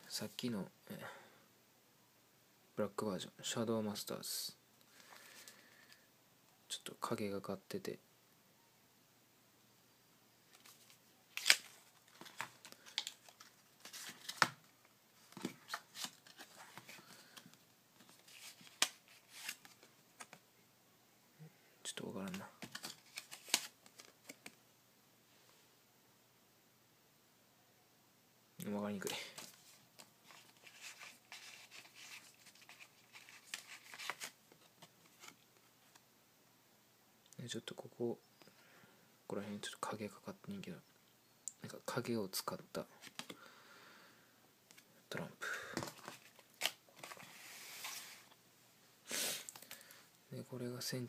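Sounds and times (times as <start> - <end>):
playing cards rustling and sliding: 10.5 - 20.4, 22.2 - 24.6, 29.0 - 36.0, 43.0 - 43.4, 45.7 - 48.4.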